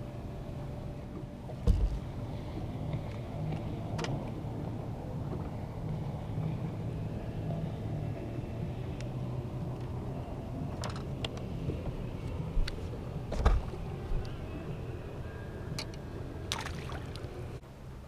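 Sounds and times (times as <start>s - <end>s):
boat engine hum: 0.0s - 18.0s
low thump: 1.6s - 2.1s
water noise: 11.5s - 17.6s.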